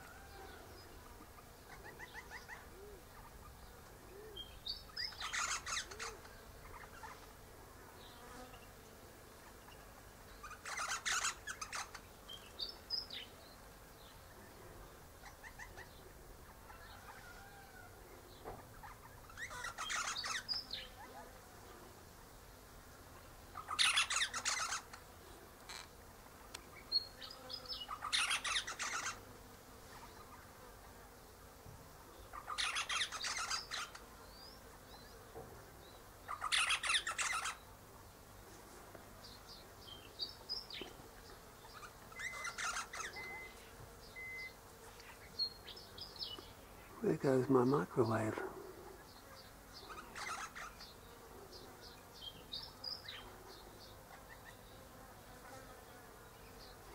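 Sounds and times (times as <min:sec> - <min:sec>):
parrot chattering: 0:41.8 - 0:43.4.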